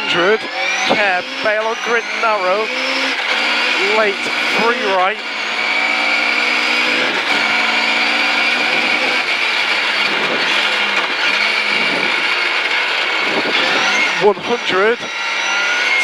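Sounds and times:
rally car engine running hard: 0:00.0 - 0:16.0
road and mechanical noise: 0:00.0 - 0:16.0.

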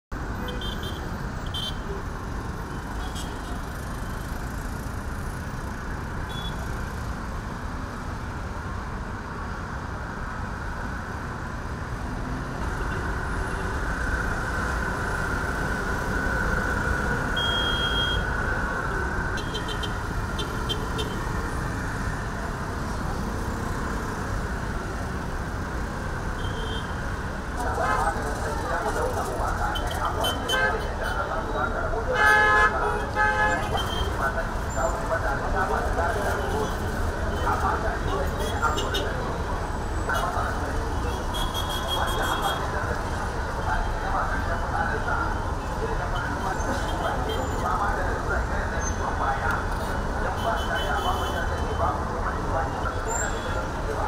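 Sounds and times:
street traffic engine and road noise: 0:00.1 - 0:54.0
short high beep: 0:17.4 - 0:18.2.

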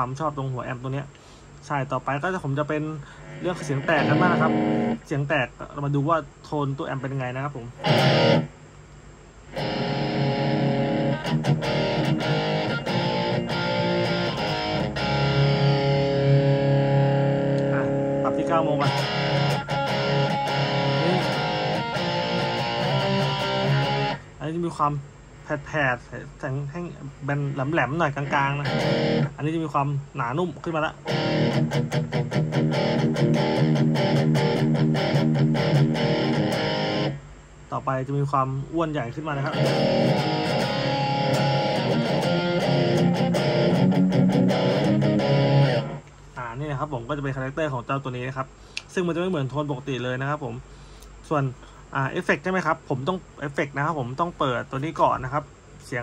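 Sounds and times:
distorted electric guitar chords: 0:03.0 - 0:05.1, 0:07.8 - 0:08.6, 0:09.5 - 0:24.3, 0:27.4 - 0:29.4, 0:31.0 - 0:37.3, 0:39.4 - 0:46.1.

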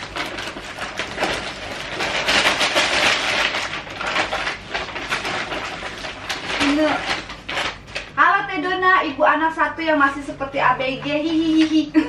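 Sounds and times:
paper bag rustling: 0:00.0 - 0:08.2.

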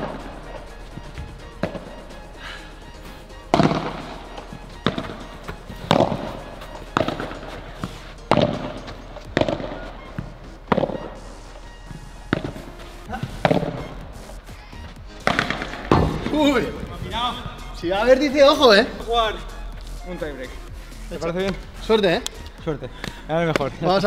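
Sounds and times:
ball struck with rackets: 0:00.0 - 0:02.1, 0:03.4 - 0:14.4, 0:15.2 - 0:17.6.

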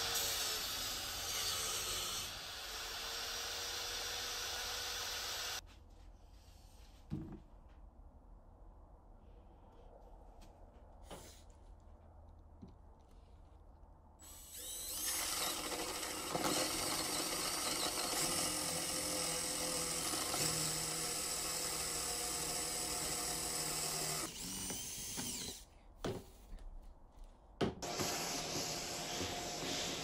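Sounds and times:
cordless drill boring wood: 0:00.0 - 0:05.6, 0:14.2 - 0:25.6, 0:27.8 - 0:30.0
shop vacuum humming: 0:27.8 - 0:30.0.

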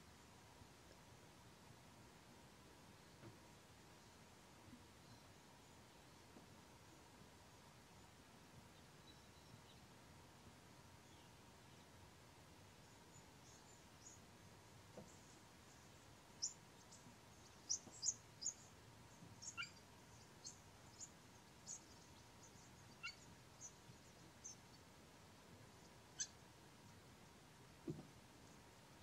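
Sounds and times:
faint background hiss: 0:00.0 - 0:29.0
bird chirps: 0:16.4 - 0:24.7, 0:26.2 - 0:26.4.

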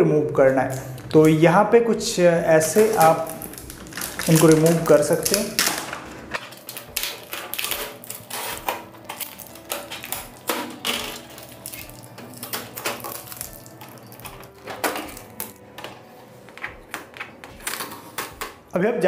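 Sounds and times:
cardboard insert rustling: 0:02.4 - 0:18.4
tape being peeled off plastic: 0:02.5 - 0:18.6.

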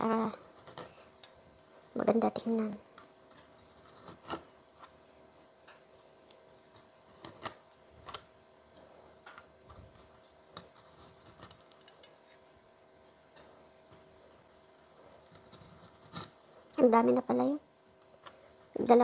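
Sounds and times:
faint steady hum: 0:00.0 - 0:19.0.

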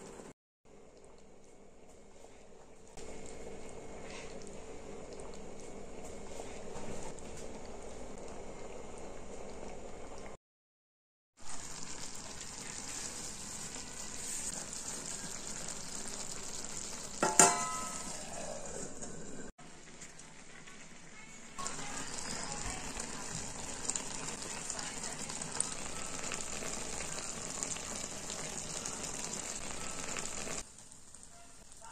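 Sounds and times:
rice sizzling in a pot: 0:11.3 - 0:31.9.

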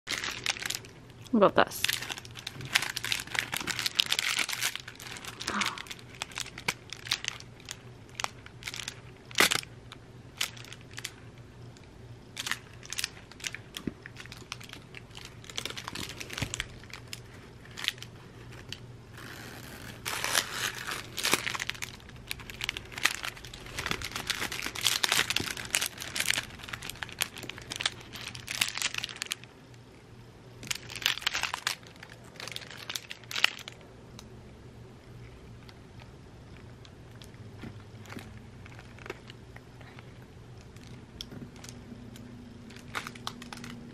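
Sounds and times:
foil toy crackling: 0:00.1 - 0:01.0, 0:01.6 - 0:11.3, 0:12.4 - 0:29.5, 0:30.6 - 0:33.8, 0:42.6 - 0:43.9.

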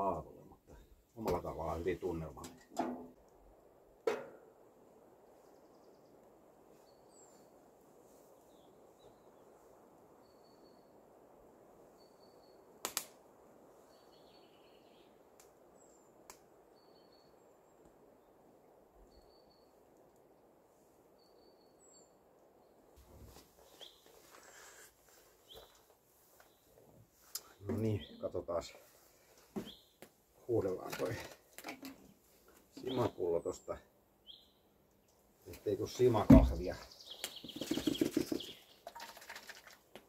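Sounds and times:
low steady hiss: 0:00.0 - 0:40.0
sharp knock: 0:04.1 - 0:04.4.

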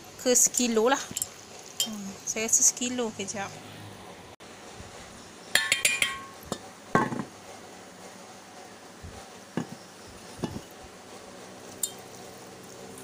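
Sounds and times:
clinks on a metal mixing bowl: 0:05.6 - 0:07.2, 0:11.8 - 0:12.1.

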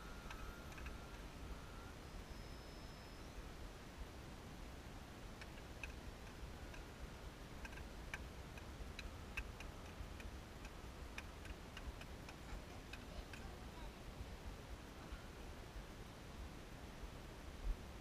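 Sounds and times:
faint irregular clicks: 0:00.0 - 0:01.3, 0:05.3 - 0:13.8.

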